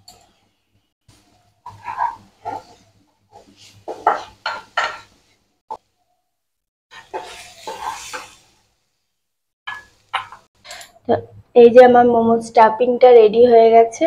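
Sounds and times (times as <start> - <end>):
spatula scraping a pan: 1.1 - 5.4, 6.9 - 8.6.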